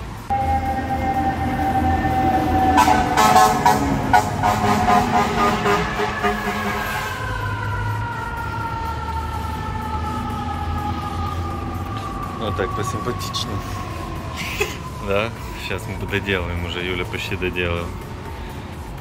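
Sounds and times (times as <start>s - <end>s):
fire engine siren: 0.1s - 19.0s
choppy horn blasts: 0.3s - 7.2s.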